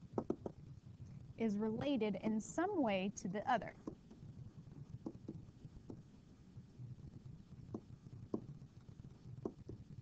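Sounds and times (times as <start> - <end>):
low steady hum: 0.0 - 10.0
stylus tapping on pen tablet: 0.2 - 0.6, 3.7 - 4.2, 4.9 - 6.1, 7.6 - 9.9.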